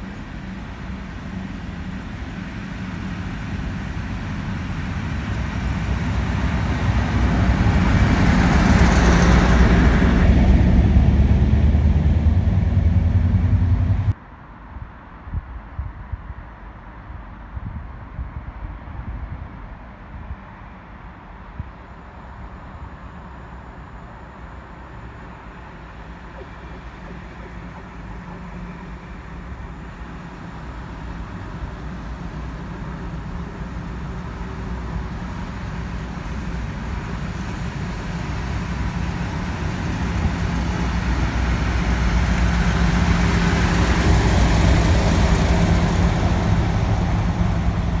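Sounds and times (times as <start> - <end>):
track rumble: 0.0 - 14.2, 36.3 - 48.0
diesel locomotive engine drone: 0.0 - 15.2, 18.5 - 48.0.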